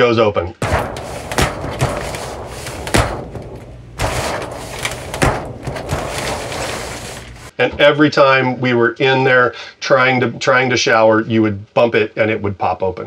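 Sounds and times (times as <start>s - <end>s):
plastic door rubbing in track: 0.6s - 7.5s.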